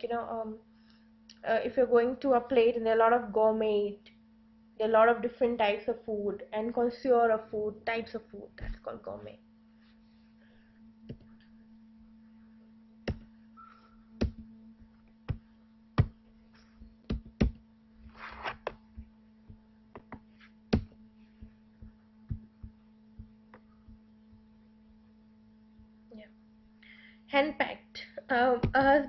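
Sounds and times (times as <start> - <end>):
electrical hum: 0.0 - 29.0
sharp clicks and knocks: 13.0 - 13.3, 17.0 - 17.6.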